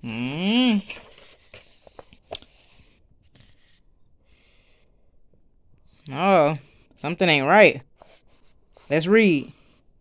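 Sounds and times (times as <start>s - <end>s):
paper rustling: 0.1s - 3.7s
light clicks of page turning: 0.8s - 2.7s.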